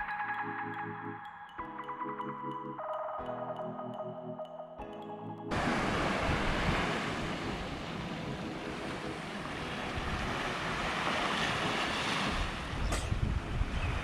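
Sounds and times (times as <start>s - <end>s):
waves washing up a sandy shore: 5.5s - 14.0s
wind buffeting microphone: 5.6s - 8.4s, 9.3s - 14.0s.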